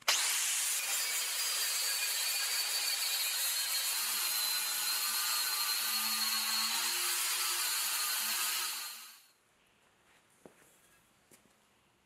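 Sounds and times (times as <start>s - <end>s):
grinder grinding steel: 0.0s - 9.2s.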